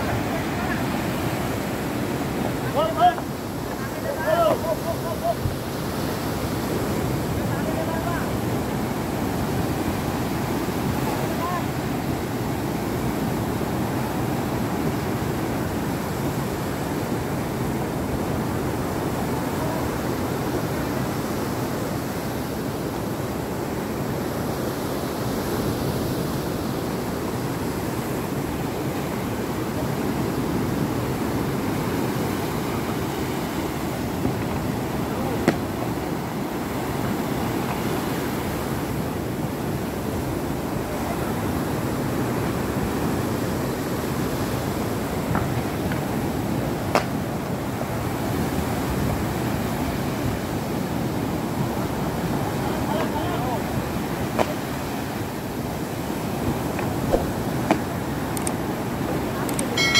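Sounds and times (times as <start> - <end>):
sea surf breaking on beach: 0.0 - 59.9
sharp knock: 57.1 - 57.8.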